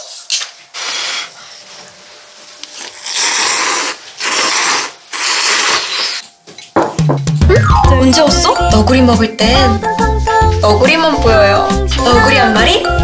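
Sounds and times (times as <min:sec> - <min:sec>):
loud noodle slurps: 0:02.8 - 0:06.2
woman blowing on noodles: 0:02.8 - 0:06.3.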